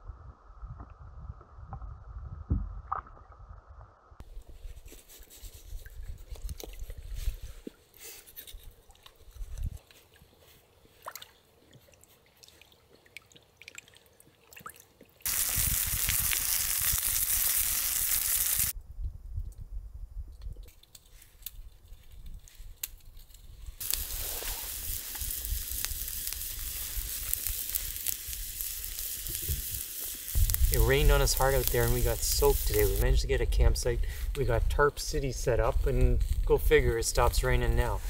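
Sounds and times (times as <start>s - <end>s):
rain: 15.3s - 18.7s, 23.8s - 33.0s.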